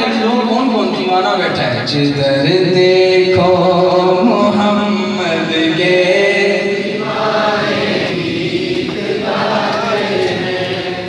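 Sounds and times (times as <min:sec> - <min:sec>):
man chanting into a microphone: 0:00.0 - 0:07.1.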